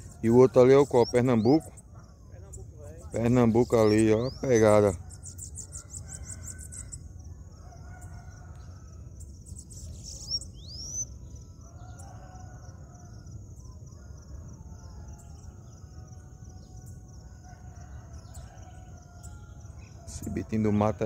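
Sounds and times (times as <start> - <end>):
faint low bird calls: 0.0 - 15.8
rising whistled bird notes: 9.5 - 12.4.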